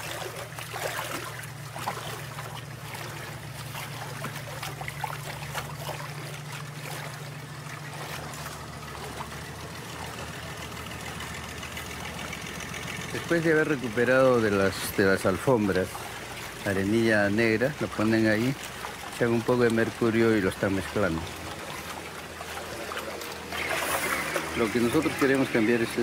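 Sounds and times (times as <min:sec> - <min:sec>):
engine humming: 0:00.0 - 0:26.0
water sloshing in tub: 0:00.0 - 0:26.0.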